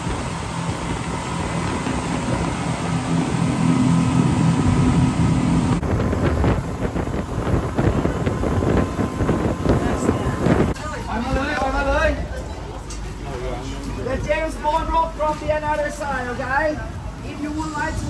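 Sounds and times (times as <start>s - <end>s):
speedboat engine droning: 0.0s - 18.0s.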